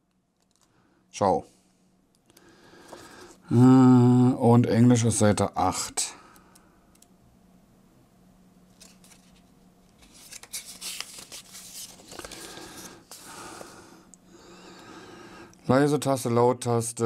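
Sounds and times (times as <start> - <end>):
paper leaflet rustling and crackling: 8.7 - 13.7.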